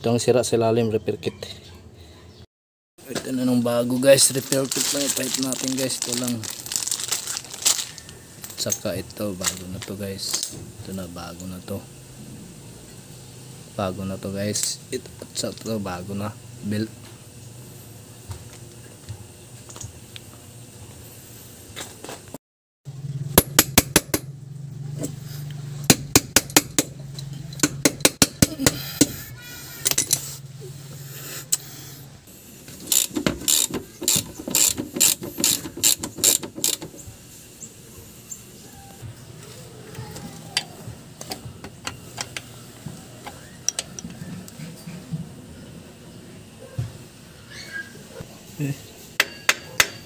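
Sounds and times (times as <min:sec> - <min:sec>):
ratchet wrench clicking: 0:32.7 - 0:37.1.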